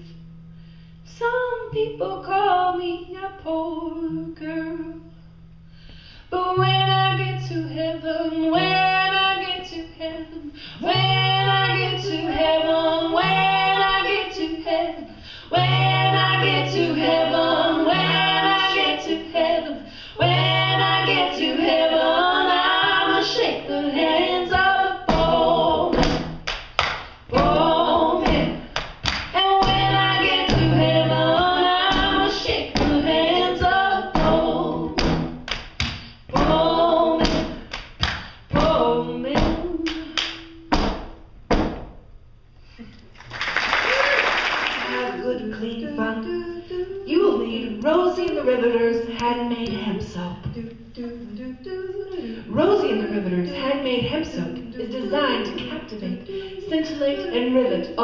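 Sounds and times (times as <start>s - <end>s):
women singing in harmony: 1.1s - 5.0s, 6.3s - 26.3s, 27.3s - 35.3s, 36.3s - 37.7s, 38.5s - 40.7s, 44.8s - 58.0s
low accompanying notes: 27.3s - 35.5s.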